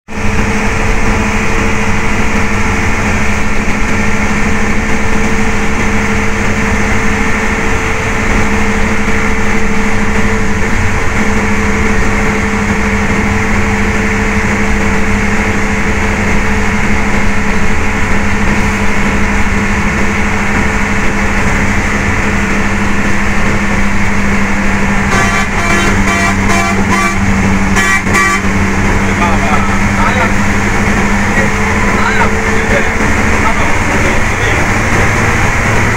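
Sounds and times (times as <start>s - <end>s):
bus engine and road noise: 0.0s - 35.9s
horn pulsing rapidly: 23.5s - 35.9s.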